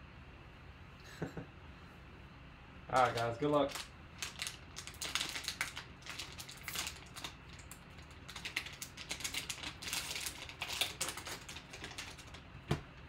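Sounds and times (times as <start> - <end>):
foil wrapper crinkling and tearing: 3.0 - 12.4.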